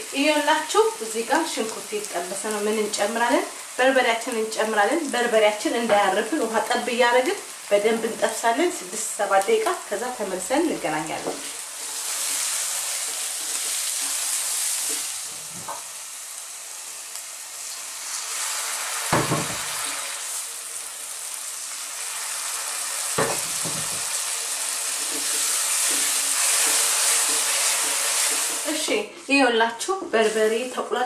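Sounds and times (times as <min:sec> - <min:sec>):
onions sizzling in oil: 0:00.0 - 0:31.0
wooden spoon stirring in a pan: 0:10.8 - 0:15.8, 0:23.2 - 0:29.0
spoon knocks on pan: 0:23.2 - 0:24.1.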